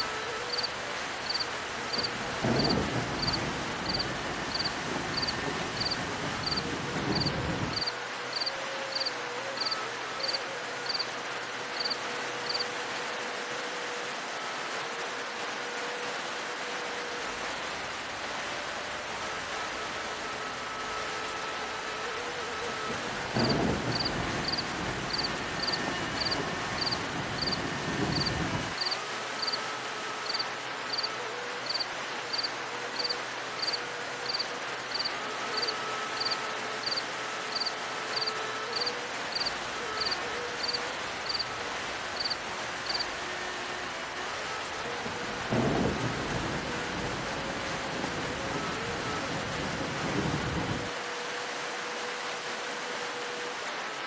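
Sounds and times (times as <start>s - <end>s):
steady rain: 0.0s - 54.0s
low rumble of thunder: 1.9s - 7.8s, 23.2s - 28.8s, 45.2s - 50.8s.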